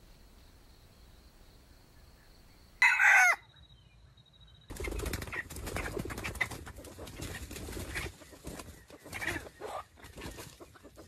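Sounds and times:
rooster call: 2.8 - 3.5.

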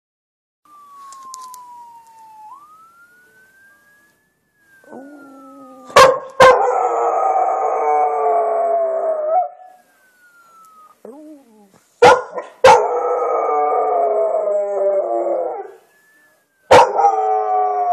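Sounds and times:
faint siren wailing: 0.7 - 11.7, 12.6 - 17.9
dog howling: 4.8 - 9.7.

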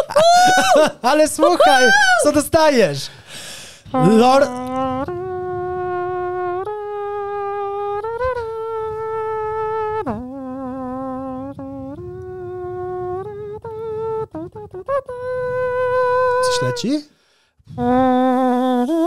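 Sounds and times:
man humming: 3.8 - 17.1.

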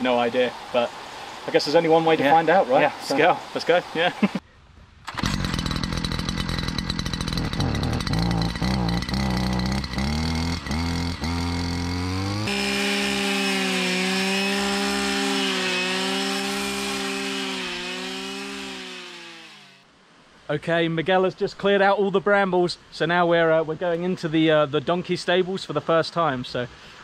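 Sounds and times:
brush cutter engine revving: 5.1 - 19.8.

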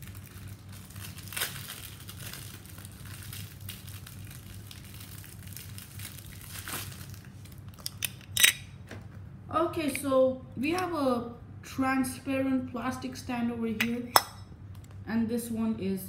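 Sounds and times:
plastic packaging crinkling: 0.0 - 8.5.

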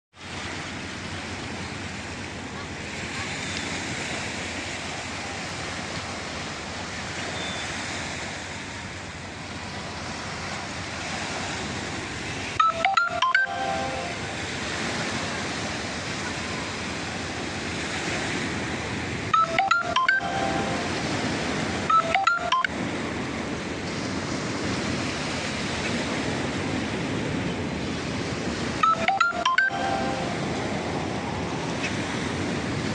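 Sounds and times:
wind: 0.1 - 32.9
electronic beeping jingle: 12.6 - 14.5, 19.3 - 21.0, 21.9 - 22.7, 28.8 - 30.6.

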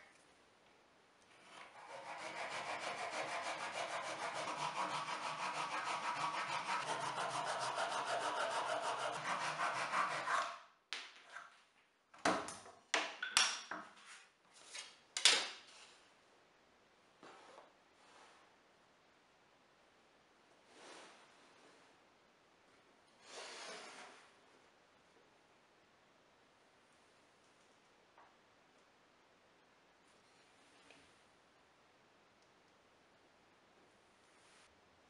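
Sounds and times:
hand saw cutting plywood: 1.5 - 10.6.

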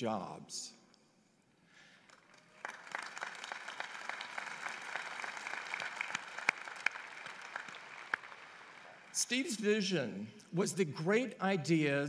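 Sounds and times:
crowd applauding: 2.0 - 9.2.

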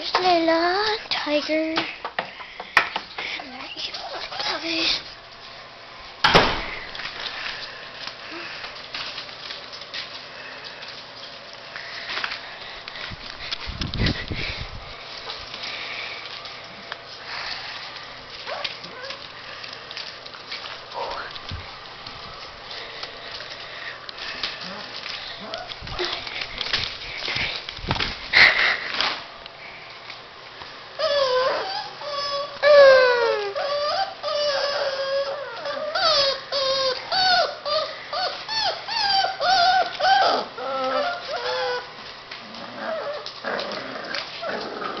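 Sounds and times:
puppies crying: 18.3 - 20.1, 30.9 - 45.0.

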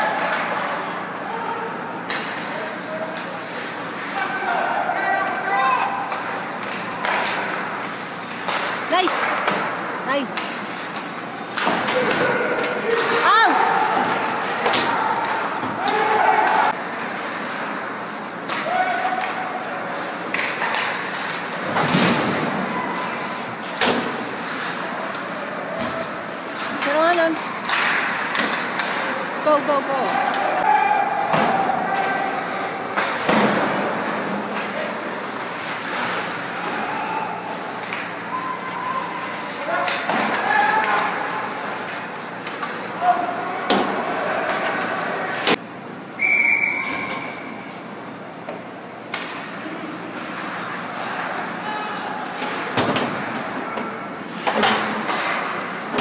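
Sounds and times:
skating and arena noise: 0.0 - 56.0
puck banging against boards: 27.6 - 29.1, 32.9 - 34.7.

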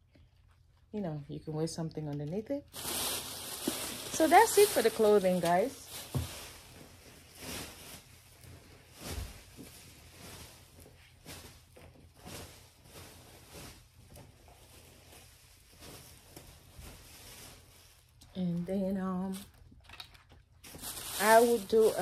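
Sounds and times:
rustling: 2.7 - 18.4, 19.3 - 22.0.

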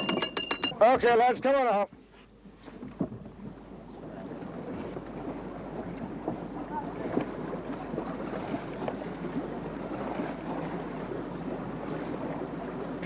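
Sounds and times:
water rushing along hull: 0.0 - 13.0.

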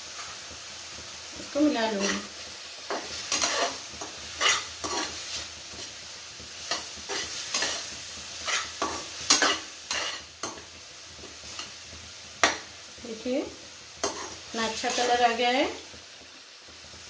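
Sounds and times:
sizzle of frying in oil: 0.0 - 17.0
spatula scraping metal pan: 2.9 - 6.0, 6.7 - 10.6, 14.0 - 15.2.

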